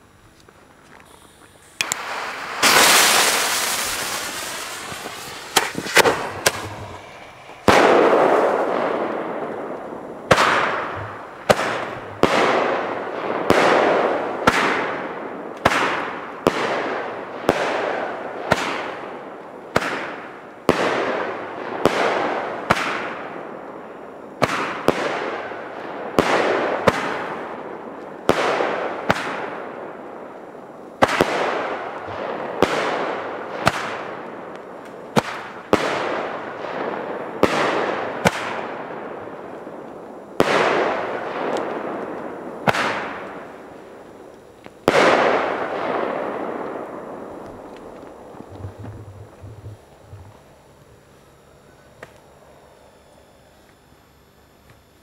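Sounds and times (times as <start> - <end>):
roman candle shots popping and hissing: 0.3 - 16.7, 31.0 - 52.3.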